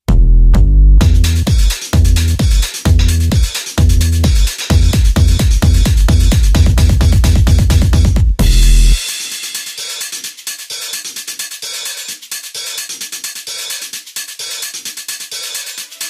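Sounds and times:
heavy bass note: 0.0 - 9.1
electronic dance music: 0.0 - 16.0
hi-hat and cymbal beat: 1.0 - 16.0.

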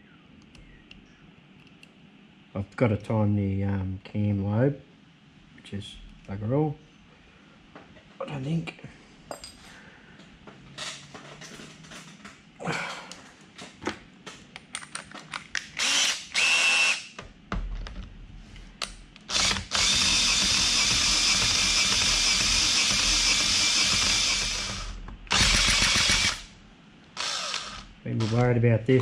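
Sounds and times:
clicks of parts handled: 13.1 - 15.8
cordless drill whining: 15.8 - 17.1, 19.3 - 26.5, 27.2 - 28.5.

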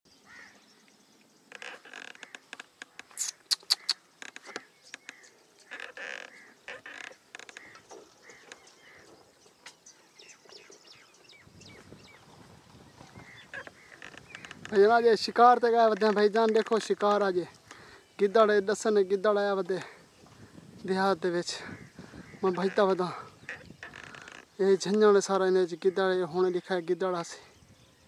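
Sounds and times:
bird calls: 0.1 - 28.0
sharp clicks and snaps: 2.2 - 5.1.

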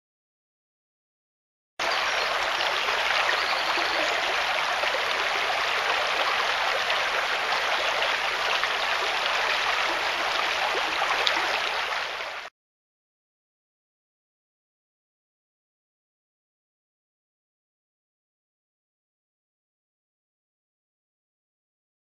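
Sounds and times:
stream rippling over stones: 1.8 - 12.5.

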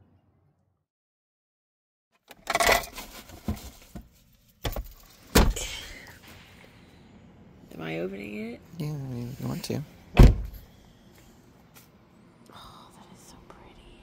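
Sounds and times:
objects rustling and clattering: 2.3 - 5.4.

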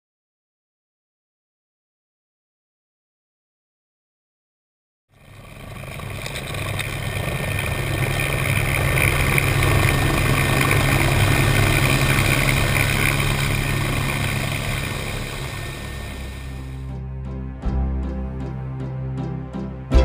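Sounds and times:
helicopter engines high whine: 5.2 - 16.9
helicopter rotor beating: 5.2 - 16.9.

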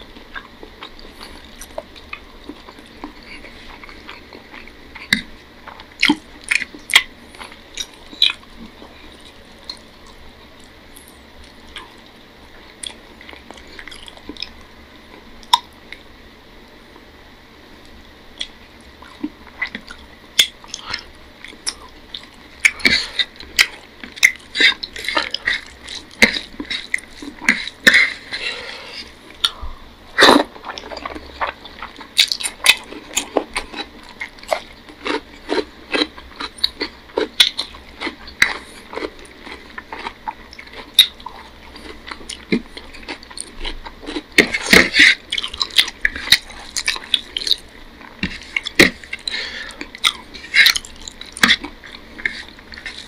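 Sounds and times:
chewing smacks: 0.2 - 14.6, 17.8 - 29.6, 30.2 - 53.0
fingers mixing rice wet clicks: 30.5 - 53.0.

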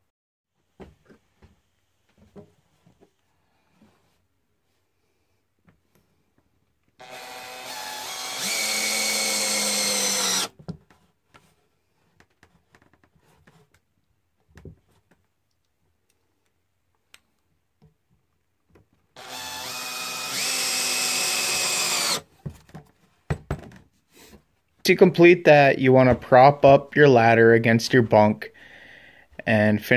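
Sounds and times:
cordless drill driving screws: 7.0 - 10.5, 19.2 - 22.3.

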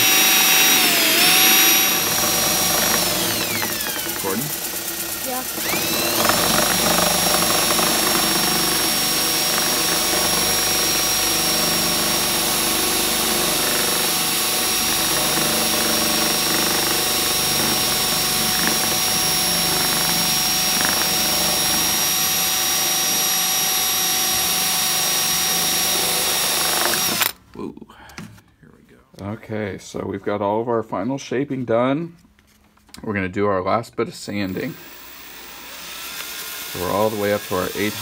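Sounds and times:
cordless drill whining: 0.0 - 27.4, 34.4 - 38.0.

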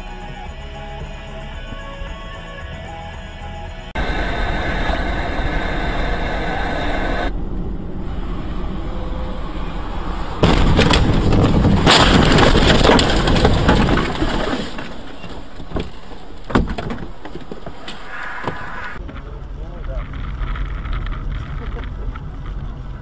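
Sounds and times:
car sliding into snow rumbling: 4.0 - 16.5
car cabin road noise: 4.0 - 23.0
sharp knocks: 10.4 - 18.6.

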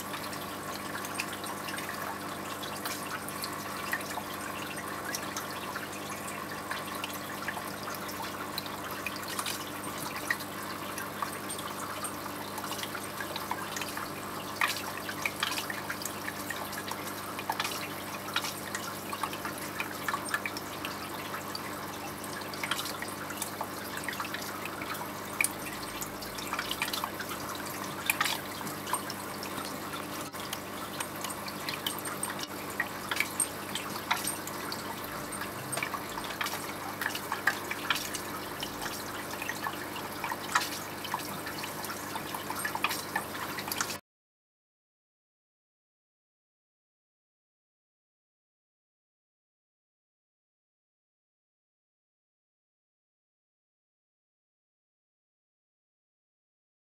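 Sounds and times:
aquarium water trickling and bubbling: 0.0 - 44.0
filter pump low hum: 0.0 - 44.0
small drip-like splashes: 0.0 - 44.0.

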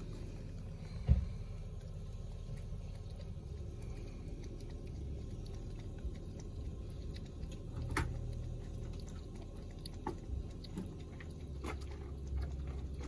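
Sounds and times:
kitten lapping water: 0.0 - 13.0
dull thump: 1.0 - 1.4.

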